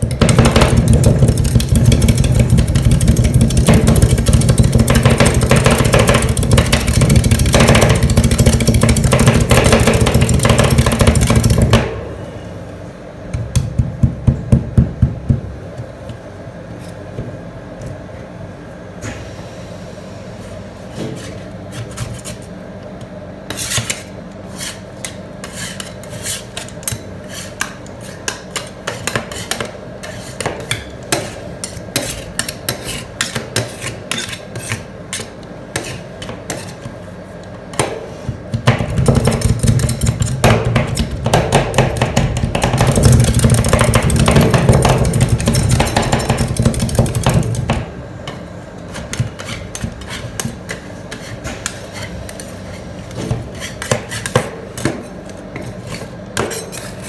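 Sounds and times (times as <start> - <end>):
metal scrapers chopping on steel pan: 0.0 - 11.8, 23.5 - 36.9, 37.7 - 47.8, 48.9 - 57.0
steady low hum: 0.0 - 57.0.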